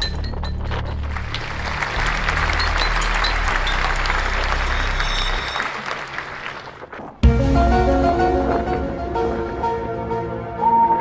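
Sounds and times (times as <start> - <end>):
dense clapping: 0.7 - 7.2
background music with bass: 7.2 - 11.0.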